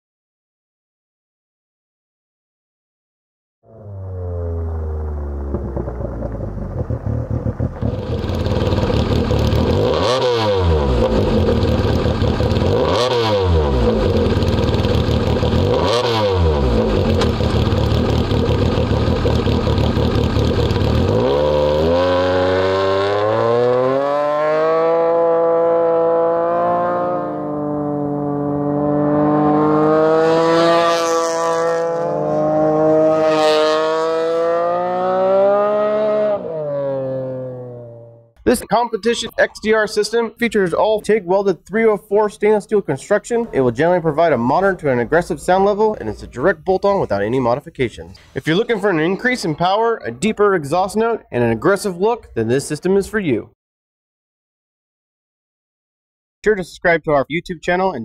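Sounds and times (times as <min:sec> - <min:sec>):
off-road vehicle engine revving: 0:03.7 - 0:39.8, 0:42.6 - 0:51.9.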